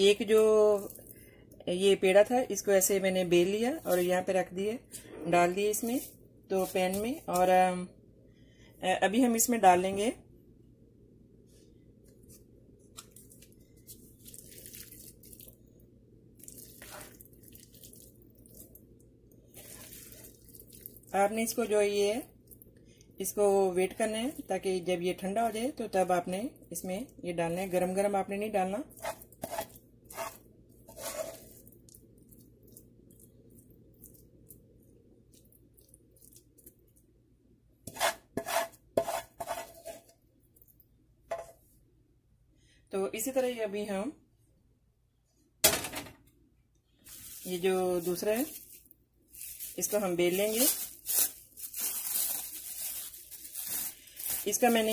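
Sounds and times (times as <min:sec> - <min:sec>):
spatula scraping frying pan: 0:28.9 - 0:31.6, 0:37.9 - 0:40.1.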